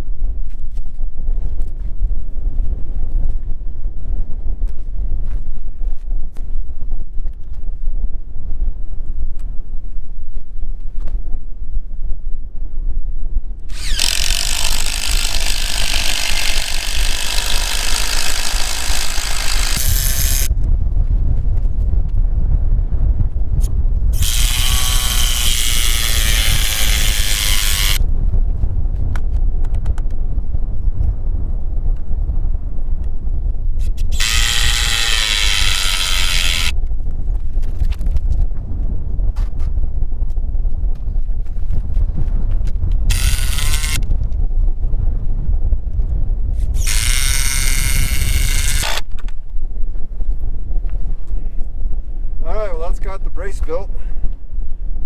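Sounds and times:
wind rumbling on microphone: 0.0s - 55.0s
cordless drill boring into wood: 13.7s - 20.5s, 24.2s - 28.0s, 34.1s - 36.7s, 43.1s - 44.0s, 46.7s - 49.1s
handheld power tool running: 13.7s - 20.5s, 24.2s - 28.0s, 34.1s - 36.7s, 43.1s - 44.0s, 46.7s - 49.1s.

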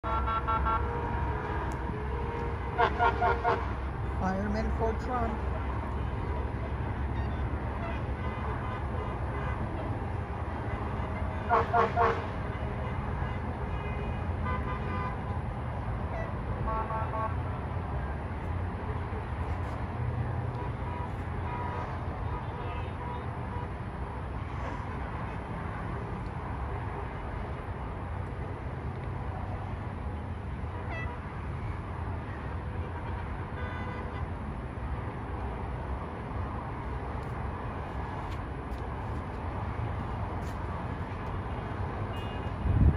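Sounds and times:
vehicle horns beeping: 0.0s - 1.2s, 2.3s - 3.7s, 10.6s - 15.4s, 16.2s - 17.4s, 32.7s - 34.3s, 42.1s - 42.8s
highway traffic rumble: 0.0s - 42.9s.

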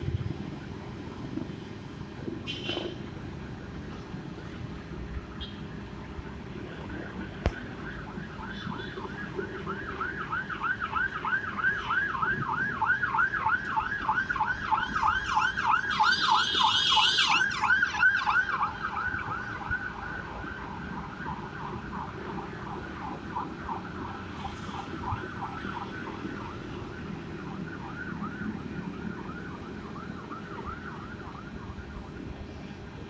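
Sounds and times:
siren yelping: 6.8s - 28.4s.

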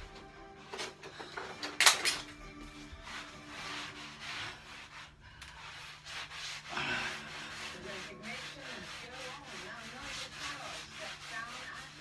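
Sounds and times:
cloth rubbing over wallpaper: 2.5s - 12.0s.

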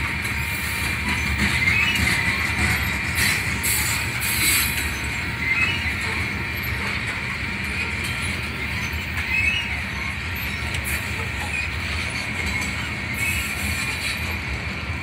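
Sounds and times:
wheels squealing: 0.0s - 14.6s
train wheels rumbling on rail: 0.0s - 15.0s.

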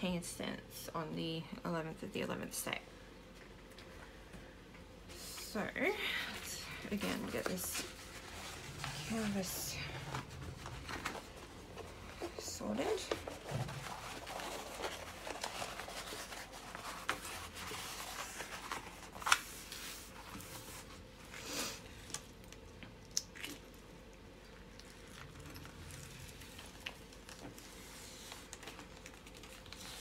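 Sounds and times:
canvas and plastic film crinkling: 5.9s - 21.1s, 24.8s - 30.0s.

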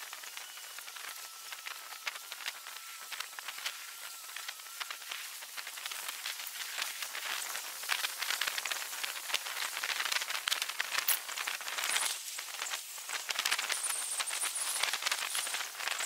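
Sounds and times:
faint high whistle: 0.2s - 3.1s.

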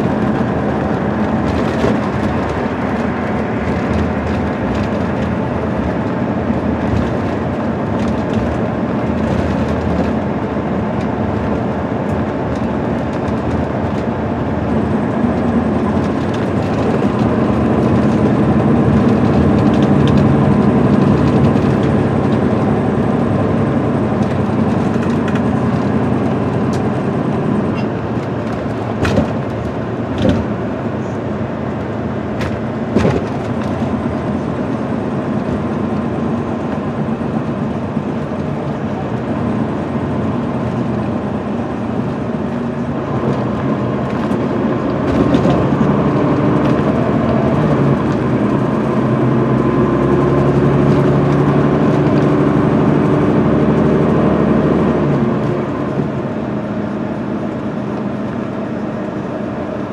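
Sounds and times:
bus diesel engine running: 0.0s - 59.9s
road noise: 0.0s - 59.9s.

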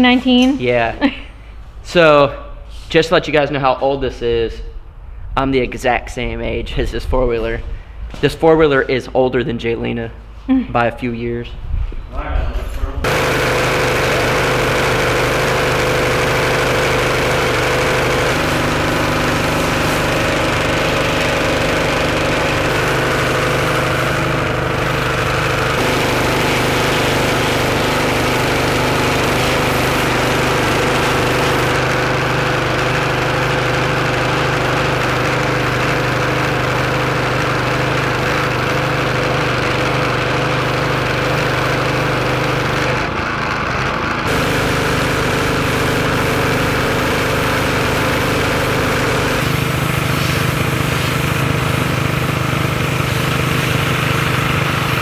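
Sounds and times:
pressure washer motor hum: 13.0s - 55.0s
high-pressure spray hissing: 13.1s - 39.2s, 44.3s - 55.0s.

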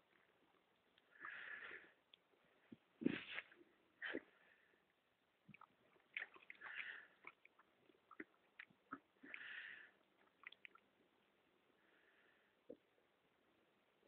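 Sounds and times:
water splashing: 5.5s - 9.6s.

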